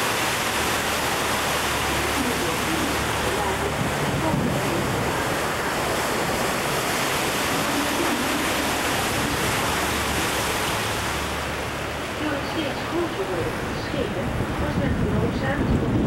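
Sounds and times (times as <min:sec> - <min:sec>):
boat engine hum: 0:00.0 - 0:16.0
water rushing: 0:00.0 - 0:16.0.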